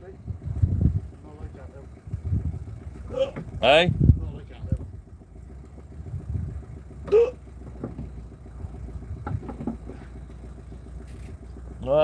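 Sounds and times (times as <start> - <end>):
low steady hum: 0.0 - 12.0
light knocks: 9.2 - 10.0.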